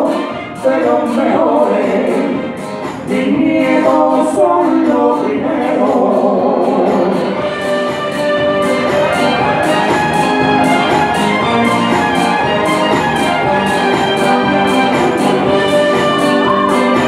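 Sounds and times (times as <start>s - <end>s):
man singing into microphone: 0.0s - 2.5s, 3.1s - 7.4s
amplified backing music: 0.0s - 17.0s.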